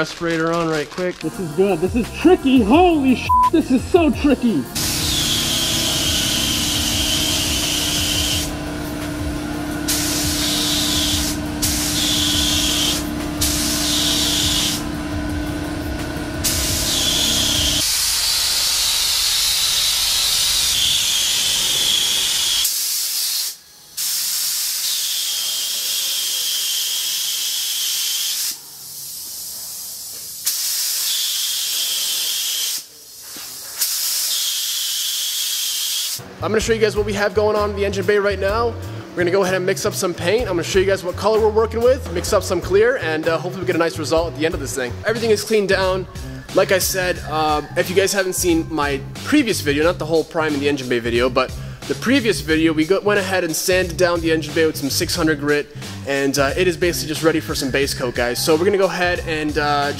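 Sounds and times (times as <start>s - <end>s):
steady low hum: 1.2s - 18.2s
spray gun hissing: 1.3s - 14.9s, 16.3s - 36.2s.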